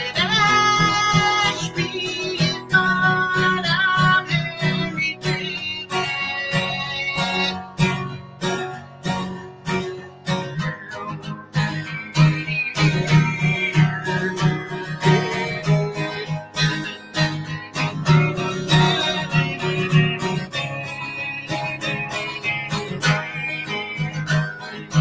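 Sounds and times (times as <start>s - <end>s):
acoustic guitar strumming: 0.0s - 25.0s.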